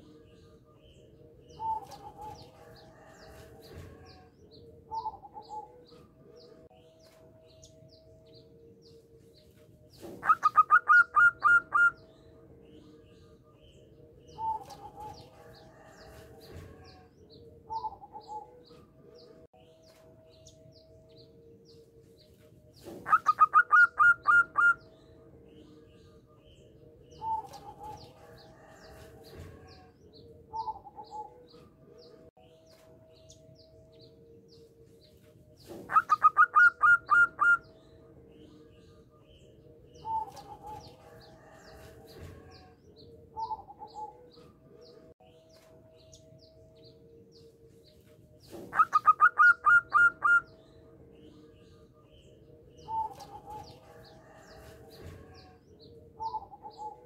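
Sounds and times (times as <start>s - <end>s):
dove cooing: 1.5s - 4.3s, 10.0s - 12.0s, 17.7s - 18.7s, 22.8s - 24.9s, 30.5s - 31.5s, 35.7s - 37.7s, 43.3s - 44.3s, 48.5s - 50.6s, 56.2s - 57.0s.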